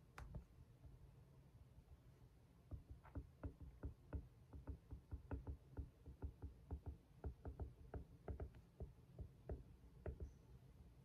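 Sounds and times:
stylus tapping on tablet screen: 0:00.1 - 0:01.0, 0:02.6 - 0:10.4.

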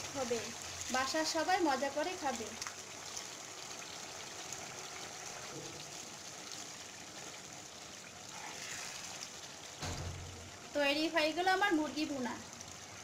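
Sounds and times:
curry bubbling in a pan: 0:00.0 - 0:13.0.

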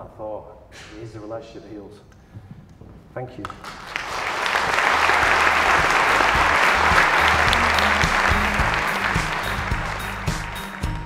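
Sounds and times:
audience applauding: 0:03.5 - 0:11.0
music playing: 0:04.4 - 0:11.0.

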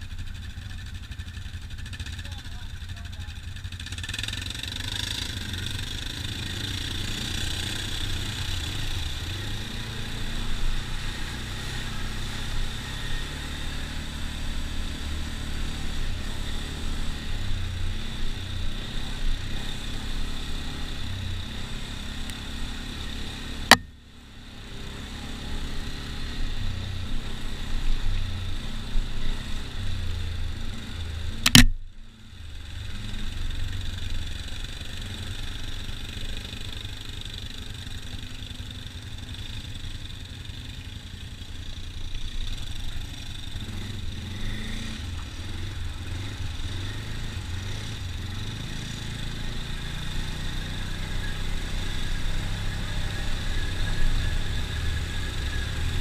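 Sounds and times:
atv engine running: 0:00.0 - 0:56.0
sharp clicks: 0:31.4 - 0:31.8.

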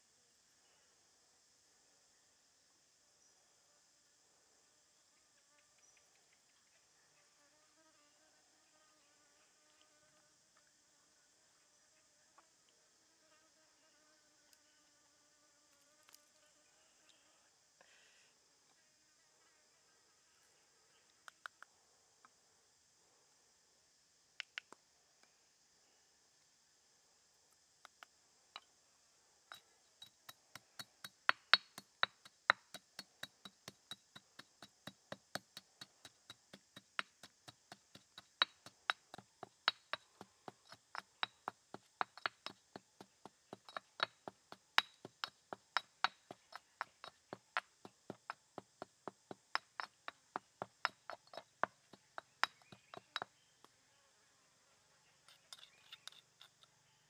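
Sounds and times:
metal spoon scraping mortar: 0:30.0 - 0:48.7, 0:49.3 - 0:53.3, 0:55.3 - 0:56.7
stone pestle knocking in mortar: 0:30.0 - 0:53.3.

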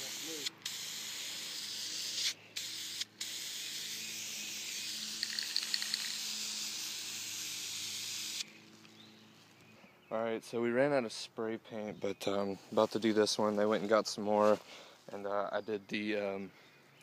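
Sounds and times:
spray paint can hissing: 0:00.0 - 0:08.5
spray can ticks: 0:00.1 - 0:08.4.

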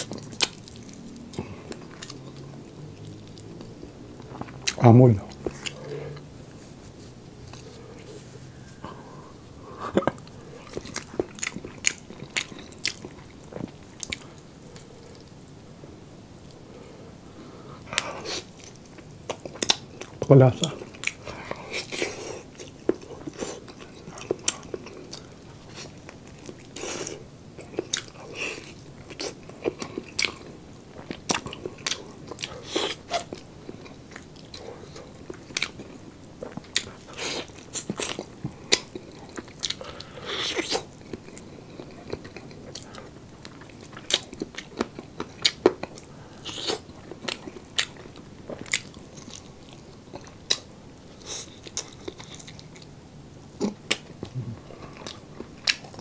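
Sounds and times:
man chewing with wet mouth smacks: 0:00.0 - 0:06.3, 0:09.8 - 0:15.4, 0:17.8 - 0:56.0.

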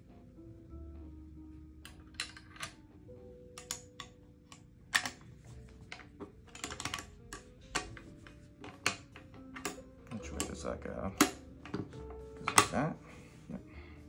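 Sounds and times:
rifle parts clicking: 0:05.9 - 0:08.0.

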